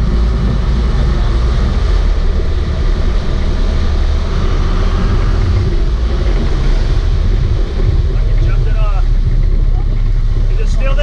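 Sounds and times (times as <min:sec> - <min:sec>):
boat engines running: 0:00.0 - 0:11.0
wake water churning: 0:00.0 - 0:11.0.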